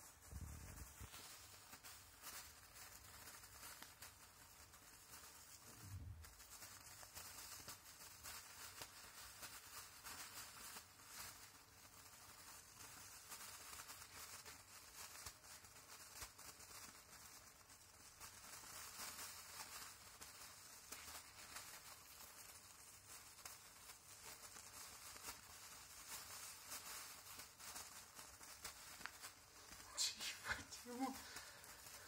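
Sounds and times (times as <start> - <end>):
plastic bag crinkling: 0.0 - 32.0.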